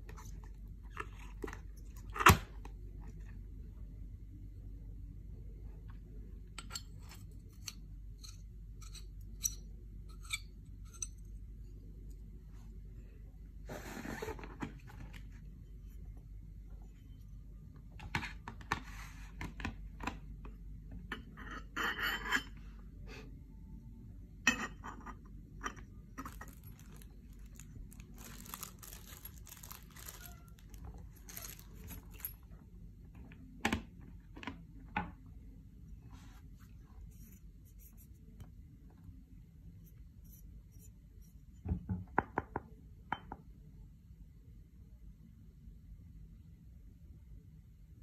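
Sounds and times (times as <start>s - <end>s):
plastic packaging rustling: 26.2s - 32.4s.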